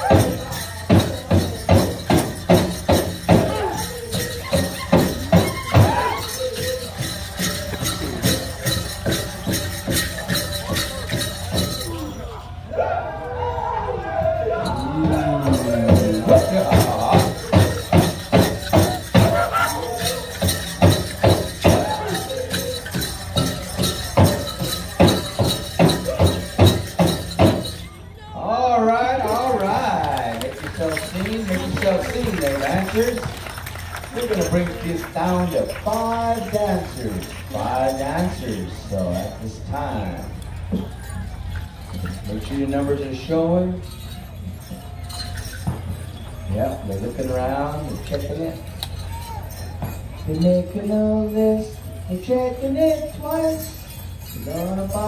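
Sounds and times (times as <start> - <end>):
powwow drum beats: 0.0 - 13.0, 14.1 - 28.0
dancers' bells jingling: 0.0 - 55.0.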